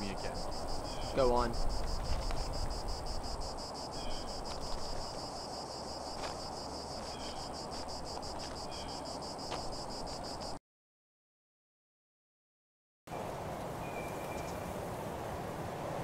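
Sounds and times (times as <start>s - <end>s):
insects chirping: 0.0s - 10.6s.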